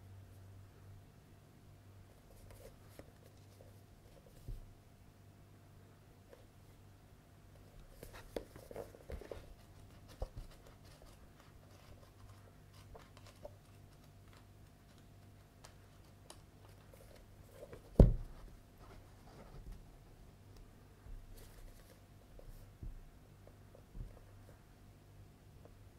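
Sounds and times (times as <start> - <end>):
paper pages turning: 8.0 - 17.8
loud thump: 18.0 - 18.4.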